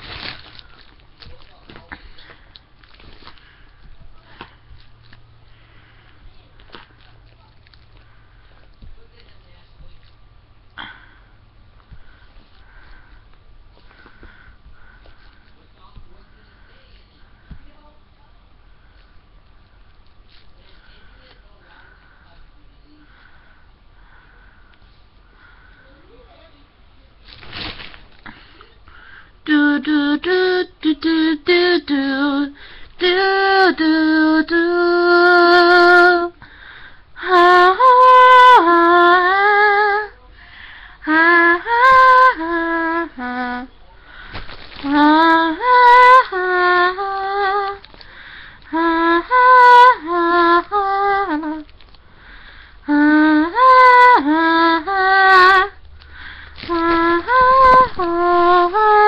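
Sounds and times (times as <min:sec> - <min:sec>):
girl singing unaccompanied: 0:29.4 - 0:36.4, 0:37.1 - 0:51.7, 0:52.8 - 0:59.0.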